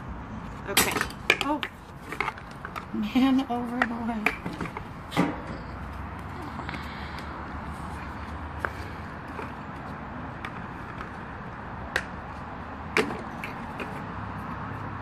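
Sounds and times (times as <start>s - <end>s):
outdoor background hiss: 0.0s - 15.0s
clicks and knocks of parts: 0.7s - 2.9s.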